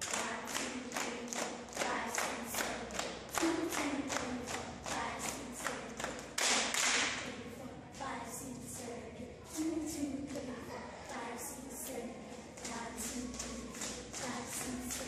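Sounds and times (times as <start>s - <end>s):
rhythmic hand clapping: 0.0s - 7.3s, 12.4s - 15.0s
voices singing along: 7.0s - 15.0s.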